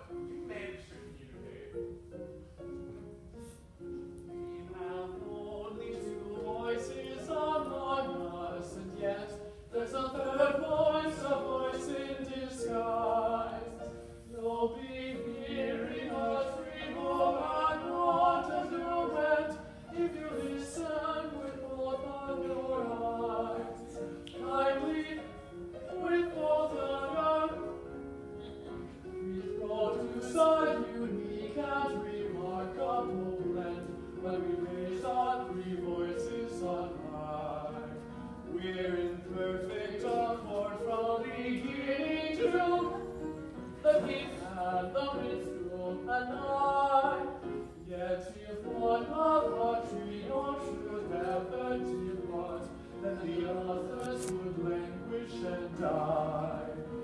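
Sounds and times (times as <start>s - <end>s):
choir singing opera-style: 4.4s - 57.0s.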